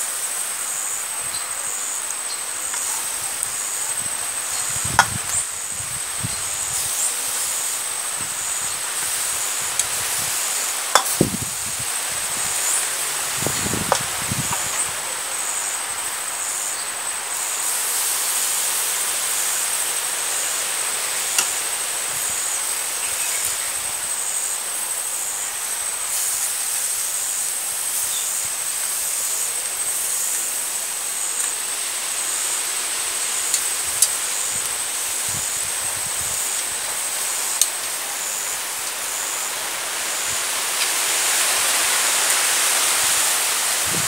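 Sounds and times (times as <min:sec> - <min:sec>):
meat sizzling on a grill: 0:00.0 - 0:44.0
light metallic clicks of tongs: 0:11.0 - 0:11.2.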